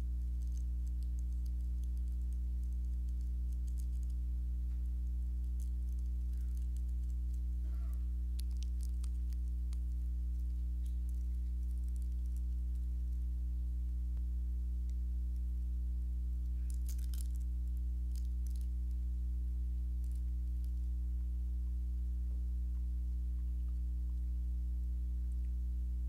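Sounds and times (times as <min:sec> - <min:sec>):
faint rustles or ticks: 0:00.0 - 0:13.3
low electrical hum: 0:00.0 - 0:26.0.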